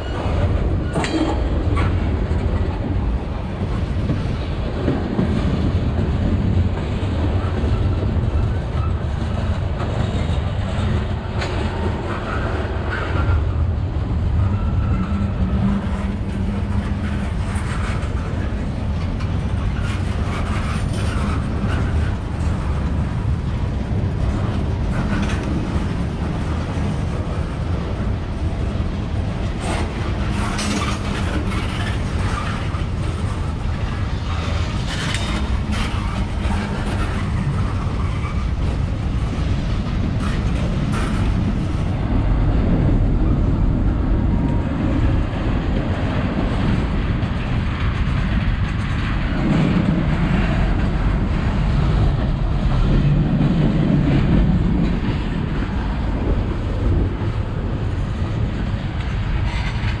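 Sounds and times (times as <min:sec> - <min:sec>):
freight train rumbling past: 0:00.0 - 1:00.0
wheels clattering over rails: 0:29.1 - 0:43.0.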